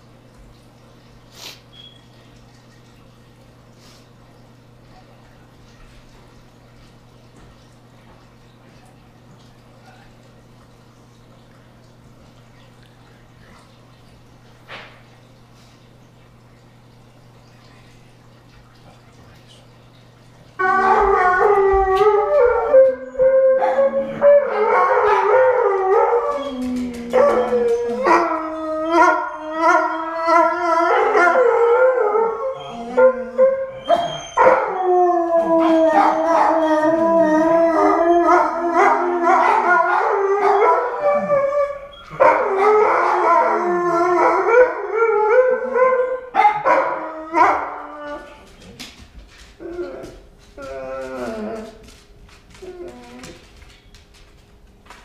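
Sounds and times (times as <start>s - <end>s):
dog howling and yipping: 20.6s - 48.5s, 49.6s - 51.8s.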